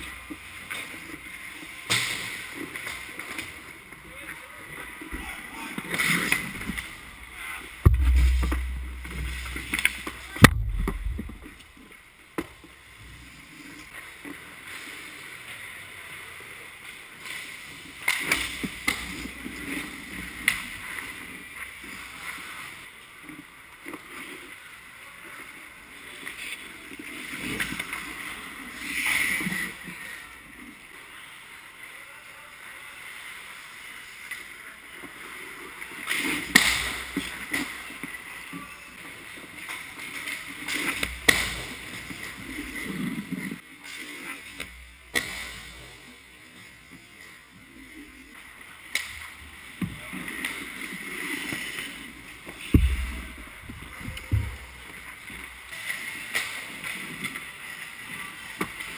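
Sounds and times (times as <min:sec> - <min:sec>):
hockey sticks and puck clacking: 0:00.0 - 0:04.0, 0:07.8 - 0:11.8, 0:18.0 - 0:21.4, 0:35.9 - 0:38.7, 0:39.5 - 0:46.1, 0:48.8 - 0:58.9
skates scraping on ice: 0:00.0 - 0:31.6, 0:32.6 - 0:58.9.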